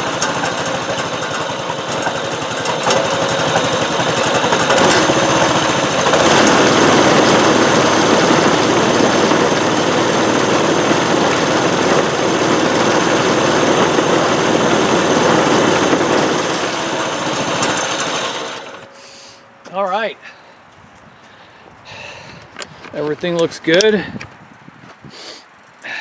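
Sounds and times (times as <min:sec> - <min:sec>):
small gas engine running: 0:00.0 - 0:19.4.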